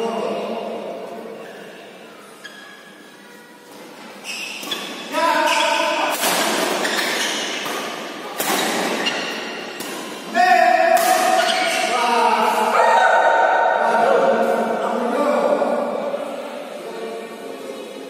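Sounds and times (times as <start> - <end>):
racket hitting shuttlecock: 6.0 - 10.3, 10.9 - 11.7.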